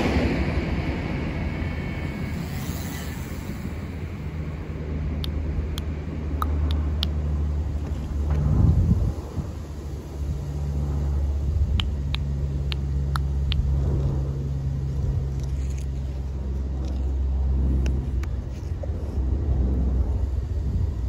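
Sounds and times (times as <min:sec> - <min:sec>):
railcar engines humming: 0:00.0 - 0:21.0
sharp high ticks: 0:05.1 - 0:07.4, 0:11.6 - 0:14.2.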